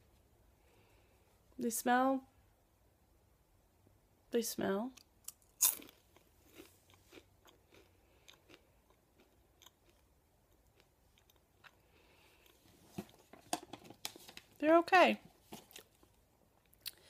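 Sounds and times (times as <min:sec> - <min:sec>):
crunchy chip bite: 0:05.3 - 0:10.1
chewing crunchy chip: 0:05.3 - 0:13.2.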